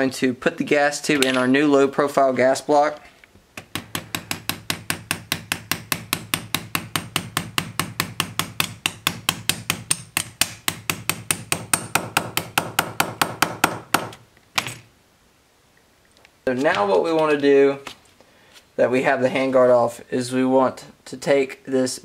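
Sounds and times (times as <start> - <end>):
small hammer tapping on steel: 3.6 - 14.2.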